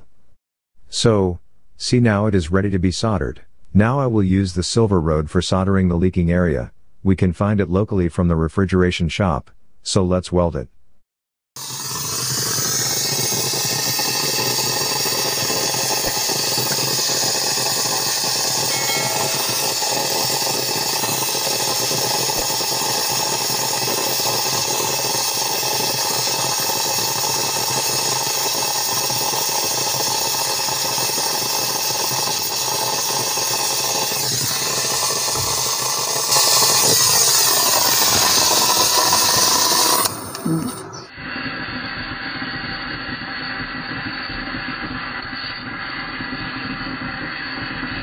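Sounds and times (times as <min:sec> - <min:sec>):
gas torch hissing: 0:11.6 - 0:48.0.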